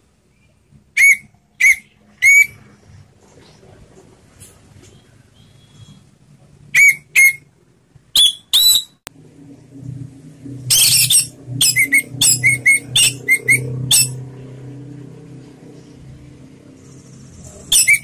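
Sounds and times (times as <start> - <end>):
thrush singing whistled notes: 8.2 - 9.0, 10.6 - 14.3, 17.5 - 18.0.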